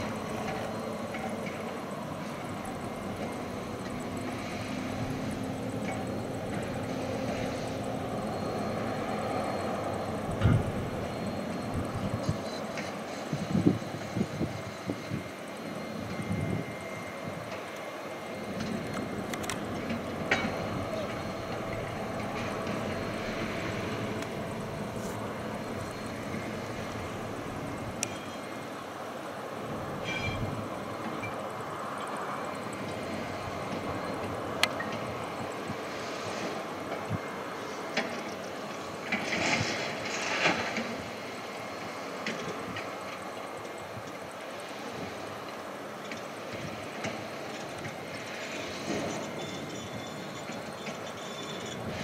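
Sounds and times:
diesel engine drone: 0:00.0 - 0:52.0
sharp metallic clank: 0:30.0 - 0:30.5.

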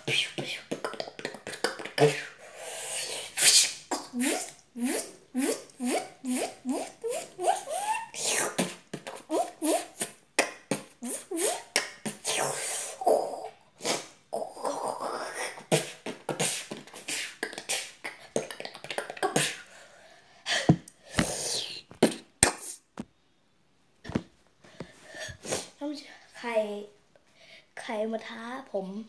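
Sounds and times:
boy beatboxing: 0:00.0 - 0:19.7, 0:20.6 - 0:22.9.

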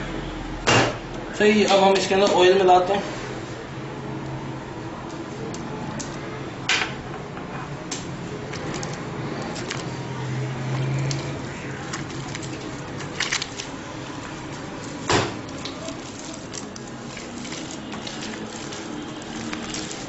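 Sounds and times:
dough squelching and slapping: 0:07.9 - 0:20.0.

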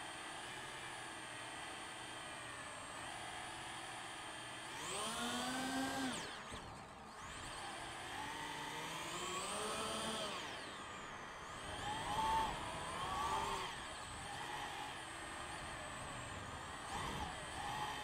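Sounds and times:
drone propellers whining: 0:04.8 - 0:18.0.

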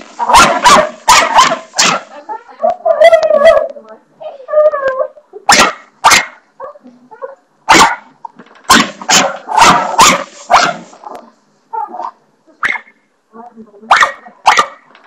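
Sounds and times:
small dog barking: 0:00.2 - 0:02.1, 0:05.5 - 0:06.8, 0:07.7 - 0:08.1, 0:08.7 - 0:10.9, 0:13.9 - 0:14.8.

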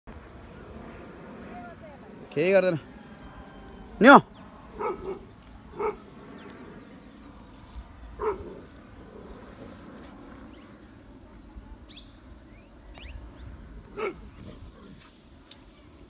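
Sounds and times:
dog barking: 0:04.8 - 0:06.0, 0:08.2 - 0:08.6, 0:13.9 - 0:14.3
faint bird chirps: 0:11.9 - 0:13.5.

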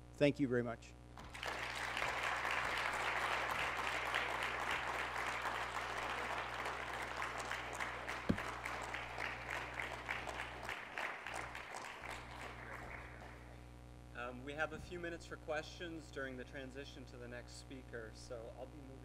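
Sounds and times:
audience applauding: 0:01.2 - 0:13.6
dull thump: 0:08.3 - 0:08.5.

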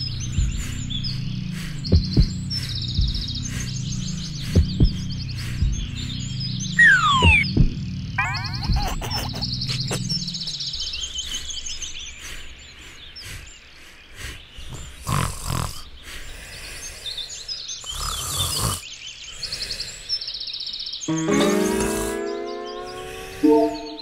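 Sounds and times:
birds chirping and trilling: 0:00.0 - 0:24.0
cartoon monkey grunting: 0:06.8 - 0:07.5, 0:08.2 - 0:10.2.

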